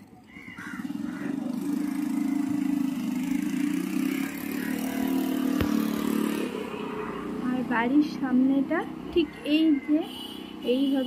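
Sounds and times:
vehicle engine running: 0:00.0 - 0:08.7.

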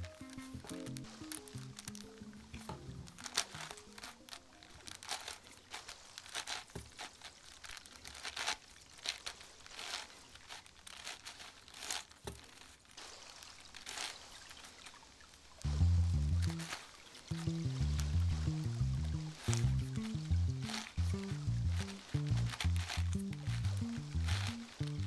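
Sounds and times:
music: 0:00.0 - 0:04.7, 0:15.7 - 0:25.0
plastic puzzle clicks and rasps: 0:00.0 - 0:25.0.

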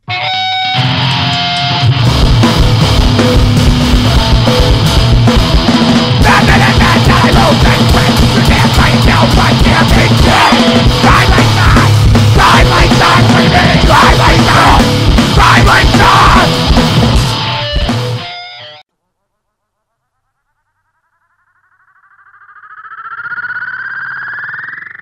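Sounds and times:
loud distorted guitar: 0:00.0 - 0:18.9
pounding drums: 0:01.5 - 0:18.2
short yelled vocals: 0:06.2 - 0:16.7.

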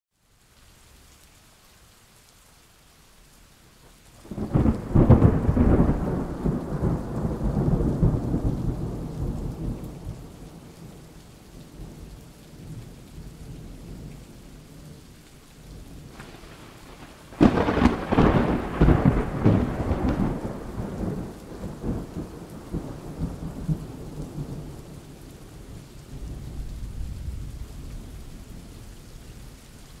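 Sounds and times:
rain falling: 0:00.1 - 0:30.0
thunder cracking and rumbling: 0:04.2 - 0:11.1, 0:15.8 - 0:25.1, 0:26.1 - 0:28.7.

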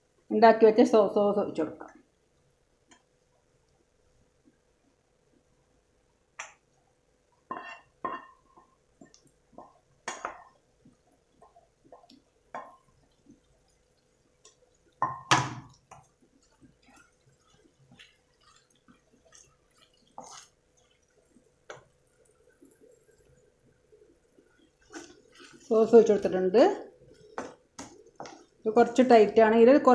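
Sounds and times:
utensils scraping frying pan: 0:16.4 - 0:20.6.

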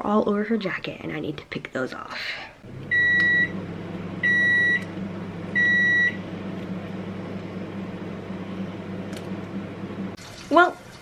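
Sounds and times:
steady low hum: 0:02.6 - 0:10.2
electronic appliance beeps: 0:02.8 - 0:09.4.

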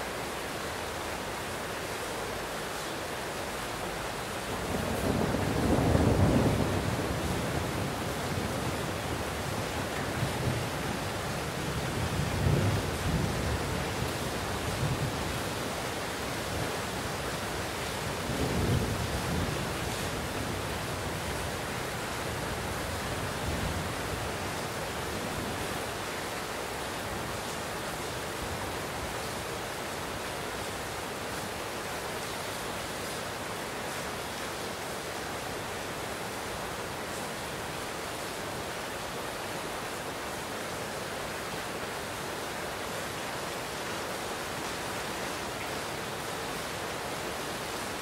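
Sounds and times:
heavy rain: 0:00.0 - 0:48.0
distant rolling thunder: 0:04.6 - 0:15.4, 0:18.0 - 0:24.4.

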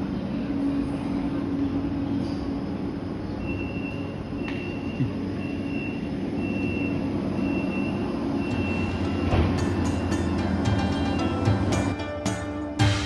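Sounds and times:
tram rumbling: 0:00.0 - 0:13.0
high electronic beep: 0:03.4 - 0:09.5.

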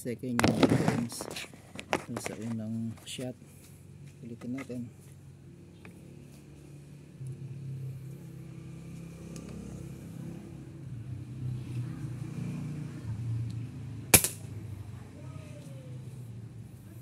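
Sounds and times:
steady low hum: 0:01.4 - 0:09.3
airgun shot crack: 0:14.1 - 0:14.4.

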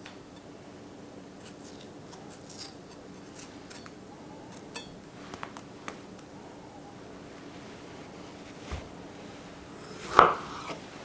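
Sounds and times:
knife cutting and scraping: 0:01.4 - 0:04.9, 0:09.8 - 0:10.9.

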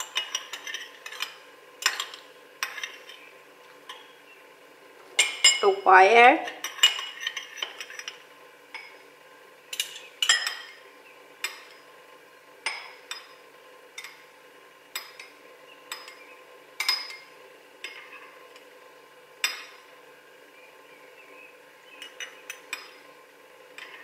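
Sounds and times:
metal spoon clinking glass bowls: 0:00.0 - 0:03.2, 0:05.2 - 0:05.8, 0:06.4 - 0:09.0, 0:09.7 - 0:10.8, 0:14.9 - 0:16.2, 0:16.8 - 0:18.2, 0:22.0 - 0:23.0, 0:23.8 - 0:24.0.

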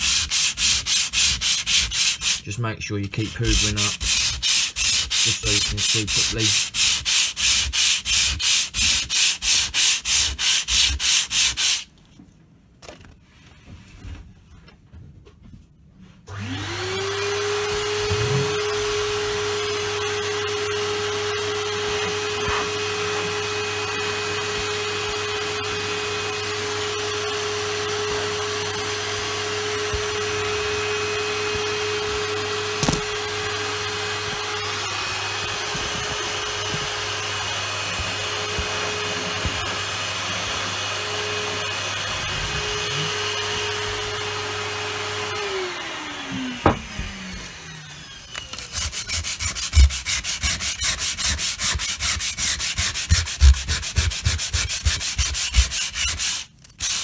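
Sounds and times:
sandpaper rubbing: 0:00.0 - 0:02.4, 0:03.1 - 0:11.9, 0:48.6 - 0:57.0
vacuum cleaner motor: 0:16.3 - 0:50.8.

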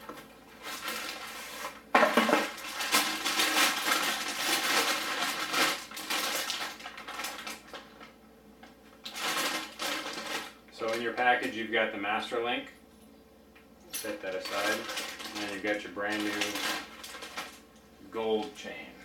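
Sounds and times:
paper crinkling and rustling: 0:00.0 - 0:11.2, 0:14.2 - 0:17.6.

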